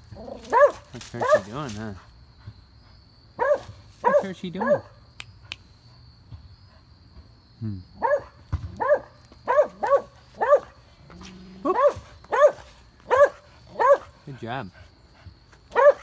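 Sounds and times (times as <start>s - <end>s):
dog barking: 0.3s - 1.6s, 3.4s - 5.0s, 8.0s - 10.8s, 11.6s - 14.2s, 15.7s - 16.0s.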